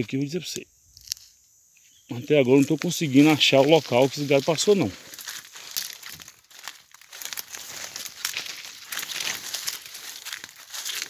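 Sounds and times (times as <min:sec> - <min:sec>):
branches rustling: 0:00.9 - 0:11.0
footsteps crunching dry leaves: 0:02.1 - 0:11.0.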